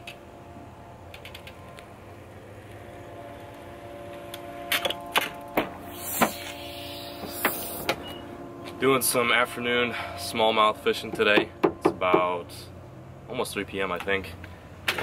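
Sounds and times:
steady background hum: 0.0s - 15.0s
bicycle clicks and knocks: 1.1s - 1.6s.

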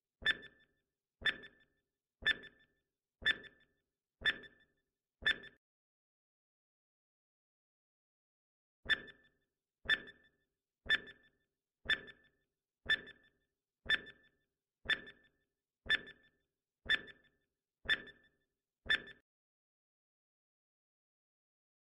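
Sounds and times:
short electronic beeps: 18.9s - 19.2s.

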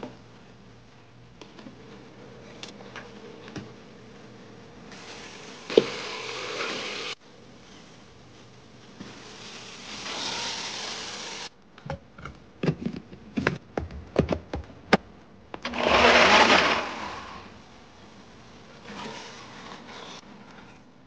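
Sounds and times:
pressure cooker hissing: 4.9s - 7.2s, 9.2s - 11.5s.

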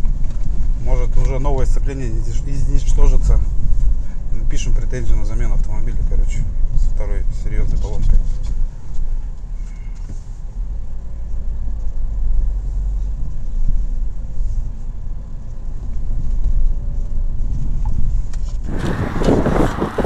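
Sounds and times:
car engine and road rumble: 0.0s - 20.0s
sudden loud noise: 18.6s - 20.0s.

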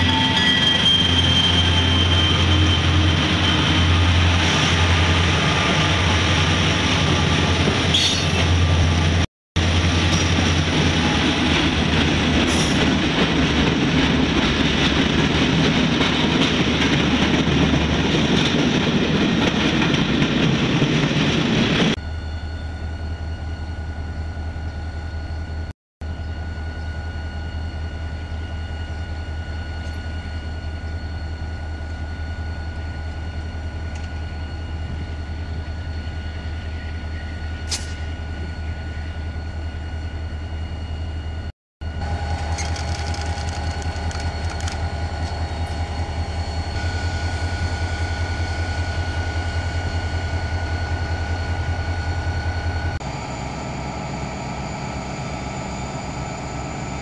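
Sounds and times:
diesel locomotive engine rumble: 0.0s - 57.0s
train passing close: 0.0s - 57.0s
train cars clicking: 42.0s - 46.0s.

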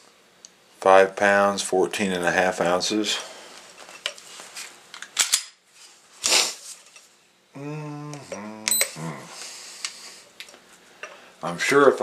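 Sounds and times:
man murmuring: 7.5s - 9.4s.

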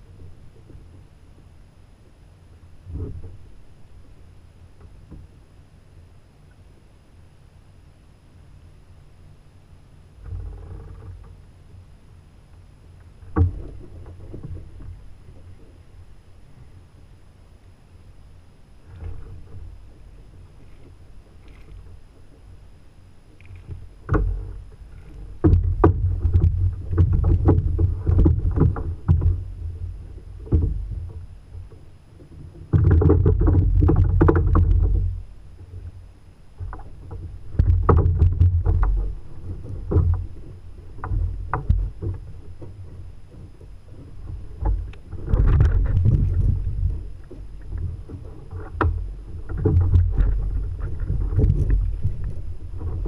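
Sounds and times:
knocks and bumps on kayak: 13.2s - 15.7s, 23.5s - 35.9s, 36.6s - 53.0s
water sloshing: 18.8s - 22.6s, 36.6s - 53.0s.

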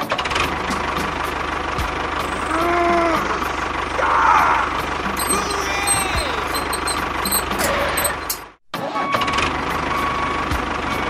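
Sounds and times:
tractor engine idling: 0.8s - 2.5s, 3.4s - 4.0s, 4.7s - 8.5s
short held tone: 5.2s - 8.4s.

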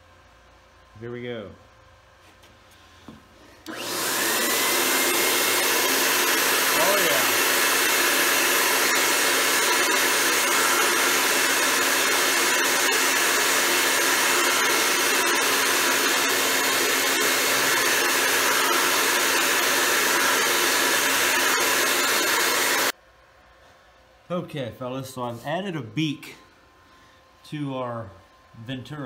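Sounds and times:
electric blower rushing air: 3.6s - 23.0s.

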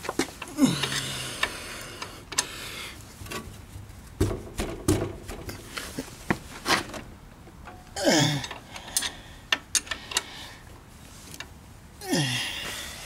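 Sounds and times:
dull knocks: 4.2s - 5.6s
wrenches clinking: 7.7s - 10.3s.

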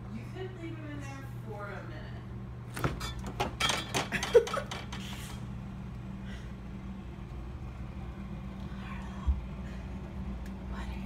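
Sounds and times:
steady low hum: 0.0s - 11.0s
refrigerator door clicks and knocks: 2.7s - 5.0s.

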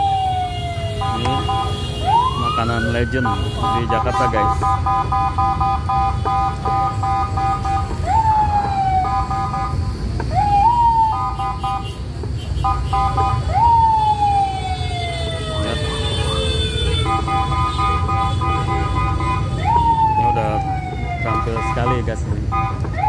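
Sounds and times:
rapid electronic alarm beeps: 1.0s - 7.9s.

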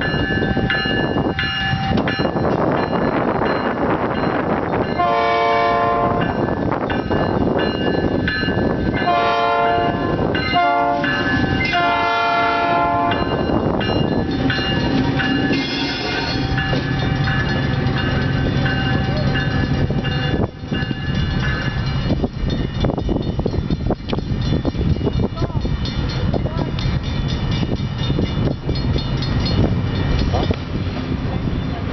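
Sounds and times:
locomotive air horn: 5.0s - 6.3s, 9.1s - 13.3s.

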